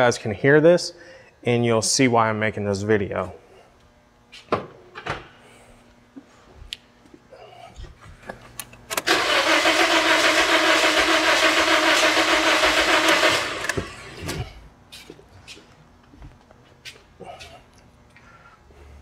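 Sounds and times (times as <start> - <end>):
car engine cranking: 8.9 - 14.3.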